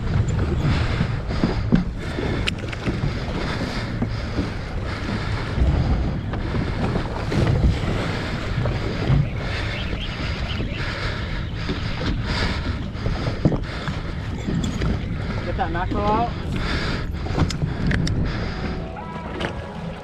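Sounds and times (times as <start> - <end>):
heavy low rumble: 0.0 - 20.0
water sloshing around boat: 0.0 - 20.0
wind buffeting microphone: 0.0 - 20.0.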